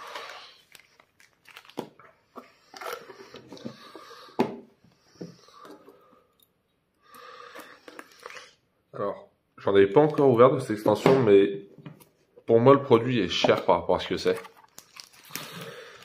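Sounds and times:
plastic wrapping crinkling: 0:00.0 - 0:03.4, 0:14.0 - 0:16.0.

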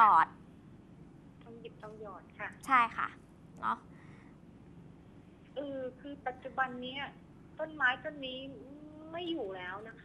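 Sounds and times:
woman speaking: 0:00.0 - 0:00.4, 0:05.5 - 0:10.0
faint hum and hiss: 0:00.0 - 0:10.0.

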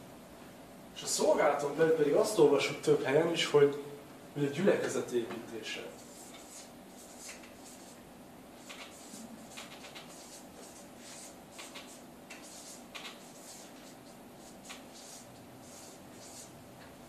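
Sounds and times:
marker scratching on board: 0:05.9 - 0:08.0, 0:08.6 - 0:16.6.

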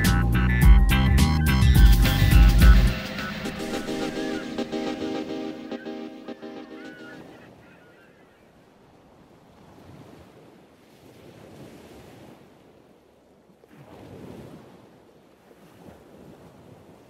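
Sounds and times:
wind: 0:00.0 - 0:17.0
surf washing on beach: 0:02.9 - 0:17.0.

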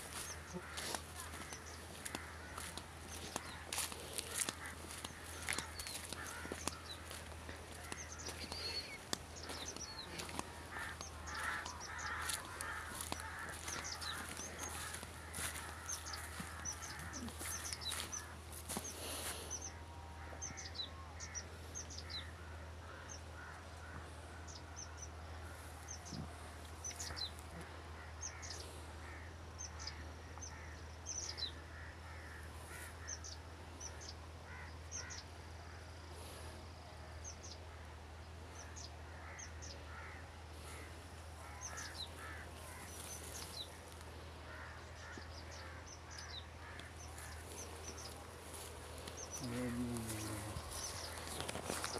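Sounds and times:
footsteps on dirt track: 0:00.0 - 0:19.6, 0:40.7 - 0:51.9
crows cawing: 0:00.0 - 0:35.9, 0:38.6 - 0:51.9
birds chirping: 0:00.0 - 0:36.6, 0:37.2 - 0:51.9.

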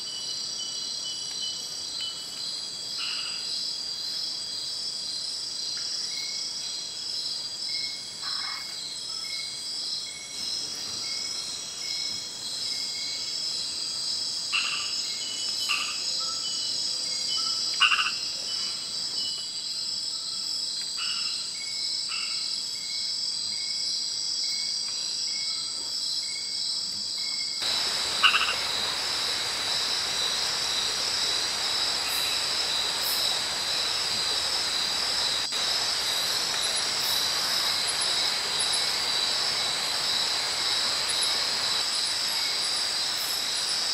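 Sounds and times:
short frog calls: 0:17.8 - 0:18.2, 0:27.6 - 0:39.8
high-pitched insect trilling: 0:27.2 - 0:43.9
steady hiss: 0:27.6 - 0:43.9.

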